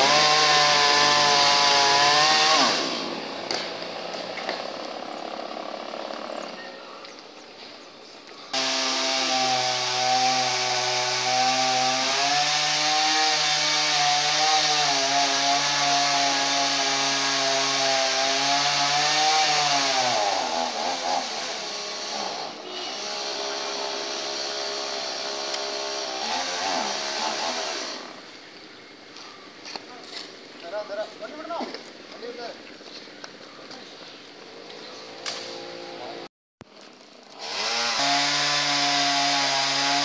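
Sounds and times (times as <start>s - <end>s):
chainsaw cutting wood: 0.0s - 6.6s, 8.5s - 28.3s, 35.0s - 36.3s, 37.2s - 40.0s.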